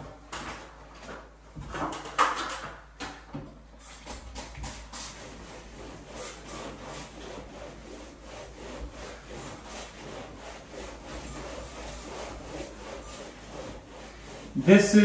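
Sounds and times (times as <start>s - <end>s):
damp cloth rubbing wallpaper: 3.8s - 15.0s.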